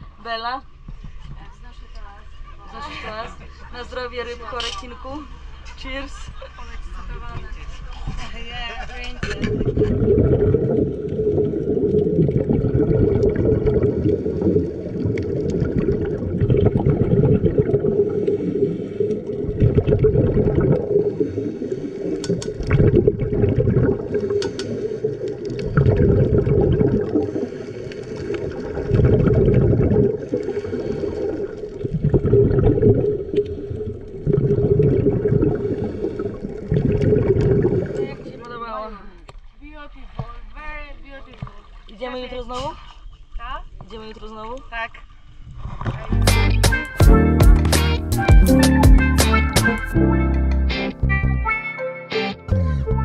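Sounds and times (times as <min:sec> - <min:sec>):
regulator bubbles gurgling: 0:09.2 - 0:38.6.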